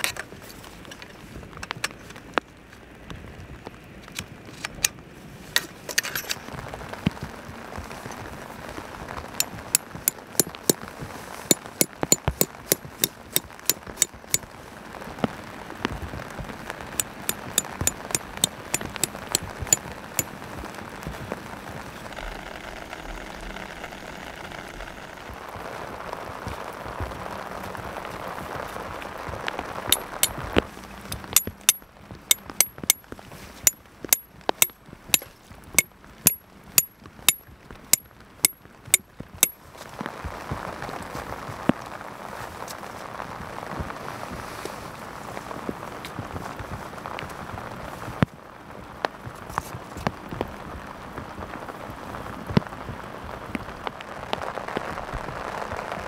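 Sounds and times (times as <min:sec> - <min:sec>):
rain on grass: 0:00.0 - 0:56.0
hammer striking metal pegs: 0:09.4 - 0:10.8, 0:11.5 - 0:14.4, 0:17.0 - 0:19.8, 0:29.9 - 0:30.4, 0:31.1 - 0:33.0, 0:36.3 - 0:37.4.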